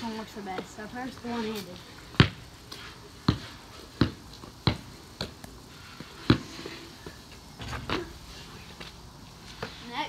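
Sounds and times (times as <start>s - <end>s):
basketball bouncing on concrete: 0.5s - 2.5s, 3.2s - 8.1s.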